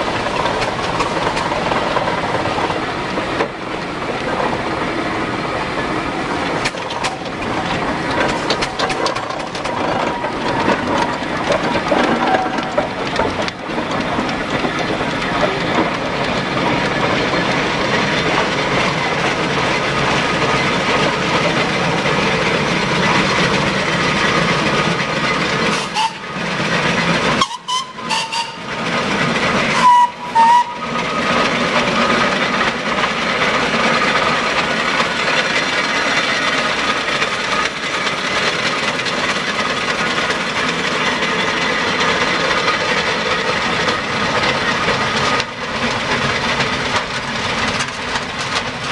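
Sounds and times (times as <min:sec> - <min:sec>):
steam engines hissing and clanking: 0:00.0 - 0:48.9
steam whistle toot: 0:25.8 - 0:26.2, 0:27.4 - 0:28.6, 0:29.8 - 0:30.8.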